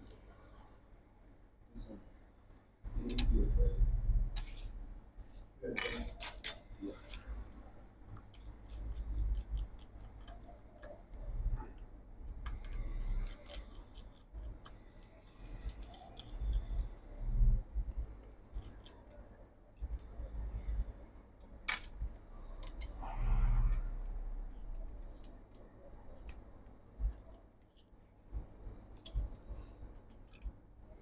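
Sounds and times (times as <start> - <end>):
small parts and tools clicking: 8.1 - 17.1, 17.8 - 23.0, 28.9 - 30.9.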